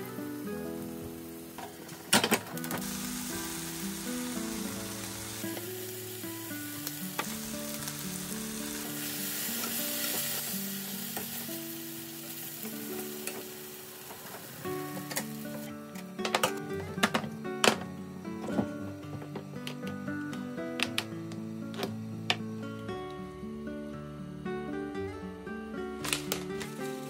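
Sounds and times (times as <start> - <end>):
food sizzling in frying pan: 0.0 - 15.7.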